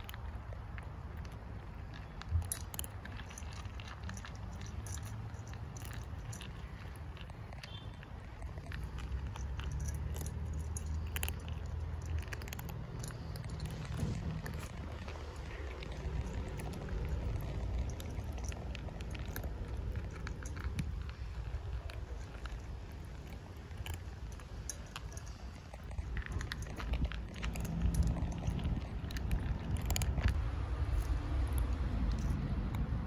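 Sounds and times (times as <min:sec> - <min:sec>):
cats crunching dry kibble: 0:00.0 - 0:33.0
steady low rumble: 0:08.1 - 0:33.0.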